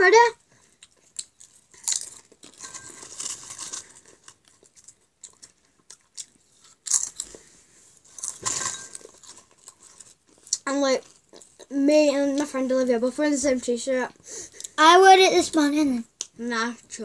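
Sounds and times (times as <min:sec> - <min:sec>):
crisps crunching: 0:00.8 - 0:11.7.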